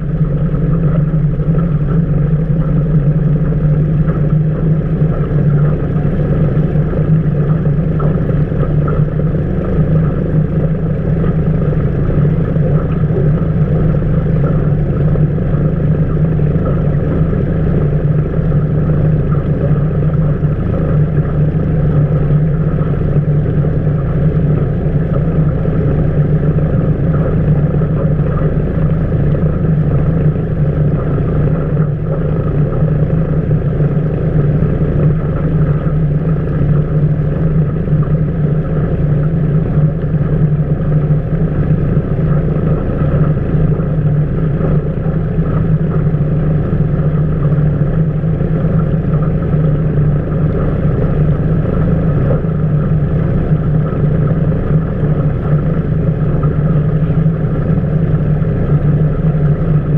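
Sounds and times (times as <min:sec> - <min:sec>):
outboard motor running: 0:00.0 - 0:59.9
water rushing along a hull: 0:00.0 - 0:59.9.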